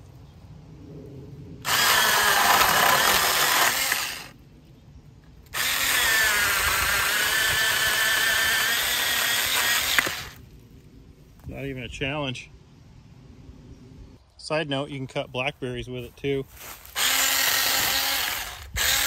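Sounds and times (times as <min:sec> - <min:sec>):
mini chainsaw cutting stick: 0:01.7 - 0:04.3, 0:05.5 - 0:10.4, 0:16.9 - 0:19.0.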